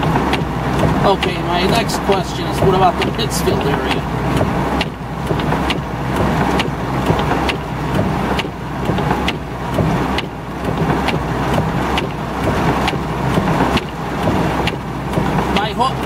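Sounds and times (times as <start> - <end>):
heavy rain drumming on car roof: 0.0 - 16.0
low steady hum: 0.0 - 16.0
windshield wipers sweeping and clicking: 0.0 - 16.0.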